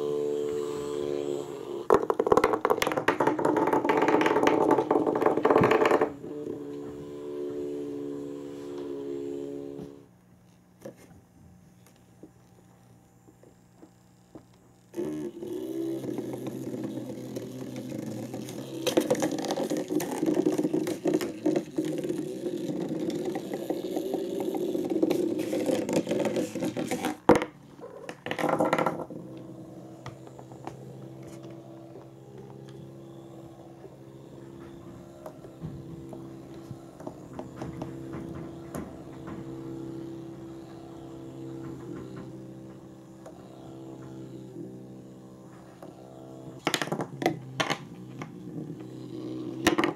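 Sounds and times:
toy mouse motor whirring: 0:00.0 - 0:11.0, 0:13.9 - 0:49.9
toy rattling against cardboard and wood: 0:00.7 - 0:07.1, 0:14.9 - 0:49.9.

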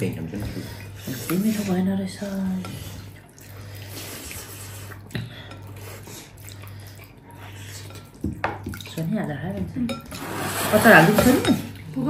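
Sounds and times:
metal dishes and spoon clinking: 0:09.8 - 0:11.8.

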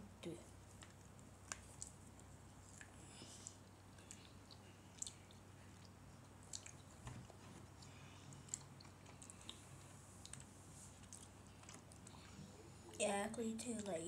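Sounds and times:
close-up chewing: 0:00.6 - 0:13.0
wet mouth clicks and smacks: 0:00.8 - 0:07.0, 0:07.8 - 0:09.6, 0:10.2 - 0:12.3.

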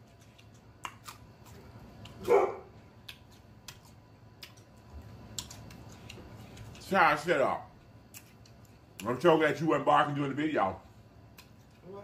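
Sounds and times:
celery being chewed: 0:00.0 - 0:07.0, 0:07.7 - 0:09.2, 0:11.2 - 0:11.9
dog barking: 0:02.2 - 0:02.7.

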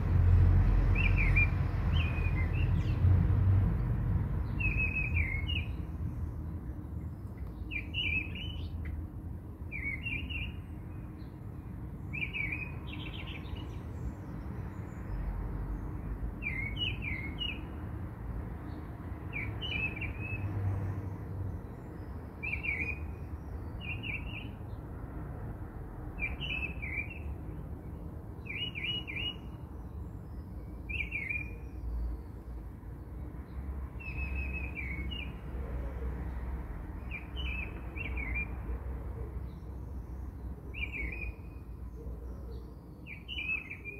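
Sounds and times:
small bird chirping: 0:04.4 - 0:05.8, 0:07.1 - 0:09.0.

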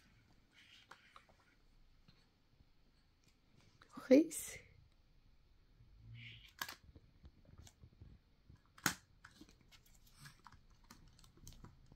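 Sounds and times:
toys clicking and rustling: 0:08.6 - 0:11.9.

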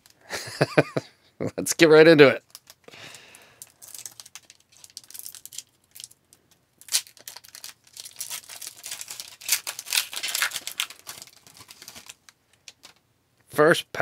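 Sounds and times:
foil wrapper tearing and crinkling: 0:02.4 - 0:06.2, 0:06.8 - 0:12.9.

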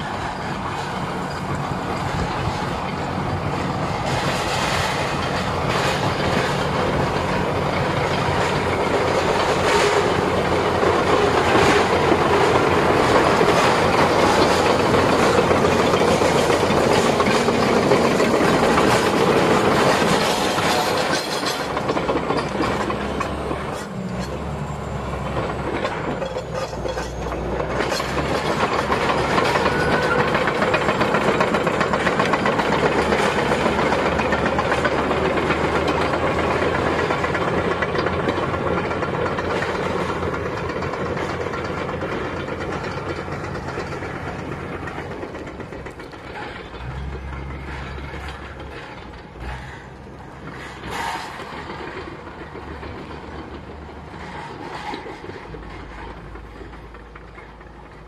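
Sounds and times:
bulldozer diesel engine: 0:00.0 - 0:58.0
steel tracks clattering: 0:00.0 - 0:58.0.

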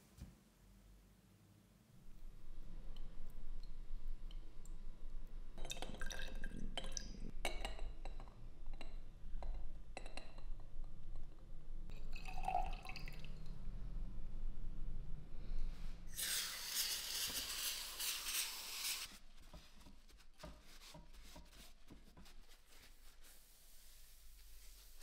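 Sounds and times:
light liquid sounds: 0:02.0 - 0:11.3, 0:11.9 - 0:13.8
steady low hum: 0:08.4 - 0:16.2.

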